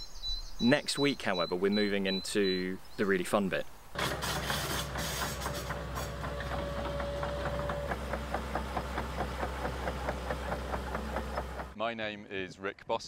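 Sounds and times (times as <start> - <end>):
engine clatter: 4.0 - 11.8
diesel engine idling: 4.8 - 11.8.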